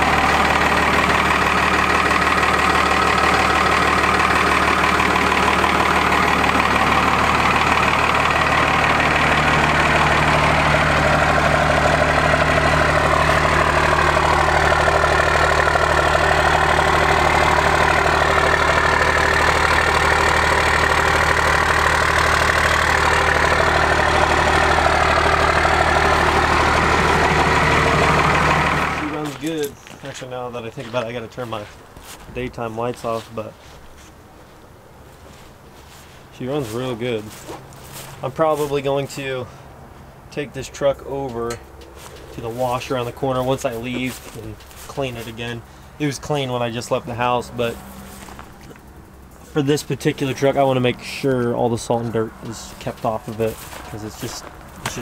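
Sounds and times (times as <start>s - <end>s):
diesel engine idling with rattle: 0.0s - 55.0s.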